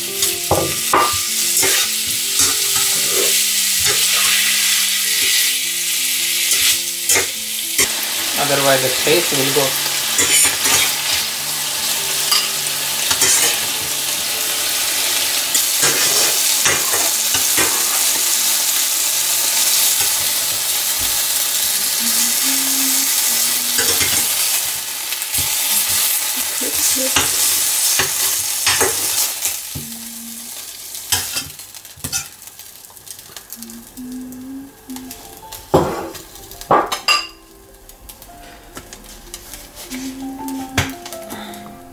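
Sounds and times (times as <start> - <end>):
chicken sizzling in hot oil: 0.0 - 41.9
spatula scraping a pan: 1.0 - 5.5, 9.7 - 14.0, 14.6 - 18.6.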